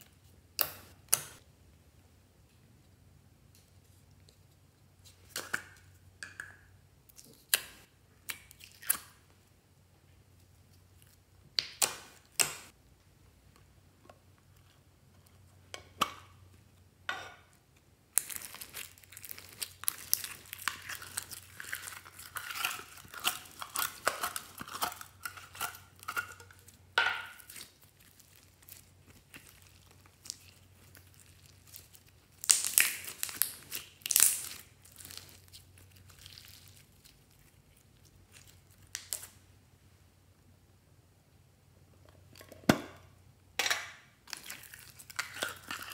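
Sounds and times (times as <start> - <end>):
slime crackling and squishing: 18.1 - 39.4, 44.2 - 45.9
slime squelching and popping: 18.1 - 39.4, 44.2 - 45.9.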